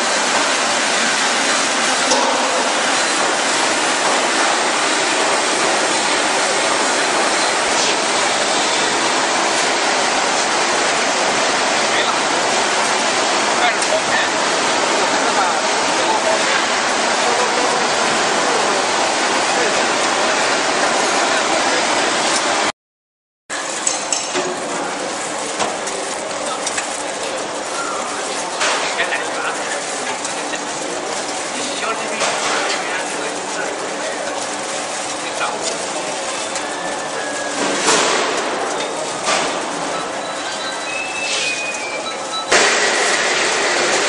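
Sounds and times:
processing machinery running: 0.0 - 22.7, 23.5 - 44.0
loud steady hiss: 40.2 - 44.0.

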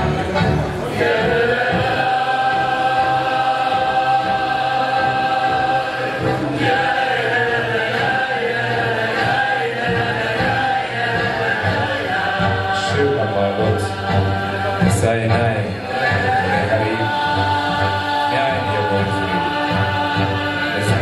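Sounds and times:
choir singing held chords: 0.0 - 21.0.

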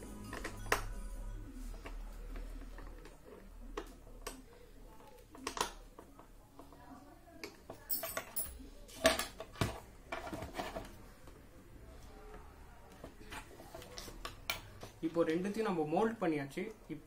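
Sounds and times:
plastic parts clicking and knocking: 1.8 - 6.8.

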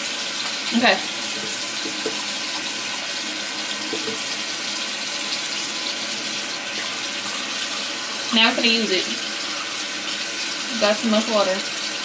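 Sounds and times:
tap running into sink: 0.0 - 7.6.

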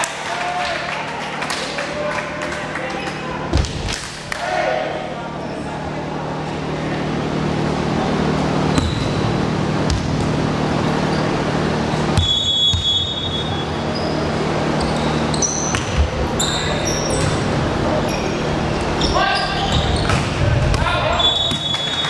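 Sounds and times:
murmuring spectators and players: 0.0 - 12.2, 13.1 - 21.5
steady low hum: 2.6 - 21.4
volleyball bouncing on wooden floor: 12.1 - 13.0
referee's whistle blast: 12.2 - 13.6.

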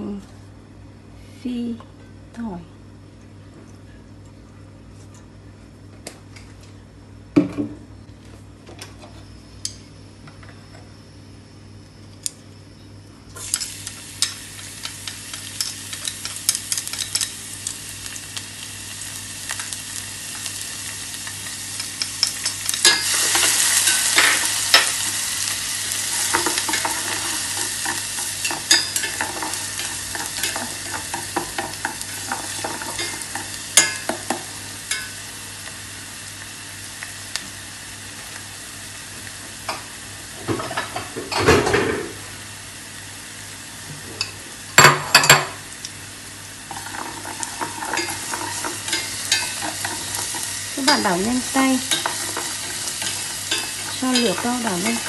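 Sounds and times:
utensil clicking in a pot: 13.4 - 17.8
garlic sizzling in hot oil: 13.4 - 55.0.

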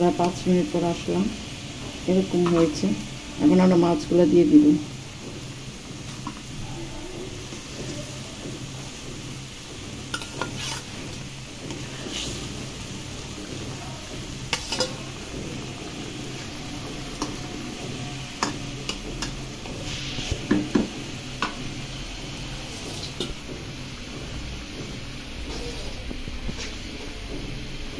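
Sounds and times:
metal spatula scraping pan: 10.0 - 13.3, 14.2 - 21.7.

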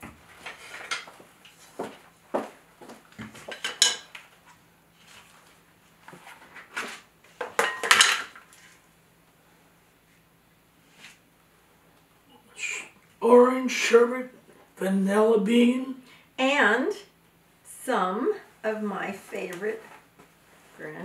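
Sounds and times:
utensils clinking against bowl: 3.5 - 4.2.

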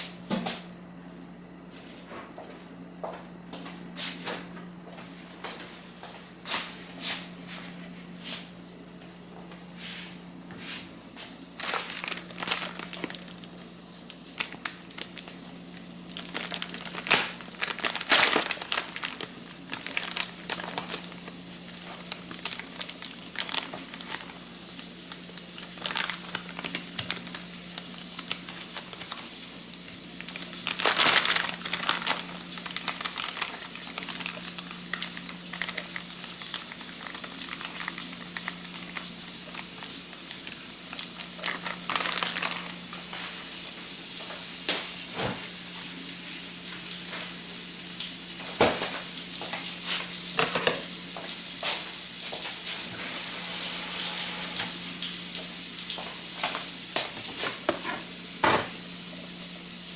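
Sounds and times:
steady low hum: 0.0 - 48.4
plastic package crinkling: 11.5 - 43.3.

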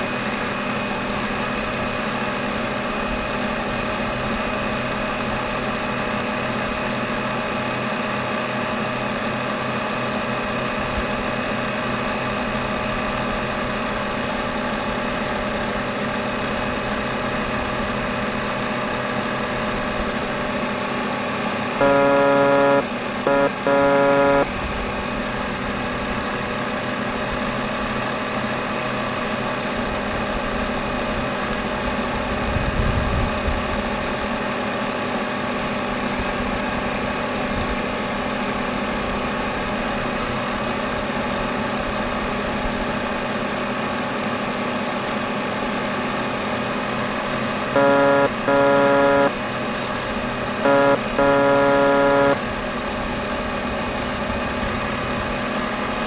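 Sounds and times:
boat motor whirring: 21.5 - 25.0, 47.5 - 52.6
buzzing horn blasts: 21.8 - 24.6, 47.7 - 49.5, 50.6 - 52.5.

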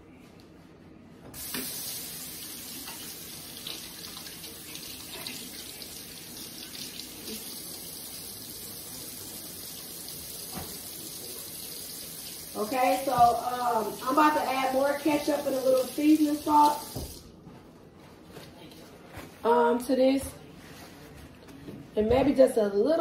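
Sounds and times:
tap water running: 1.4 - 17.4.

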